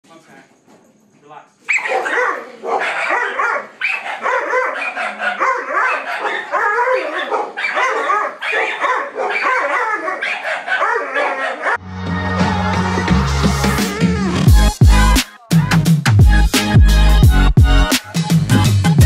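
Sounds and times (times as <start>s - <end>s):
small dog barking frantically: 1.7s - 11.8s.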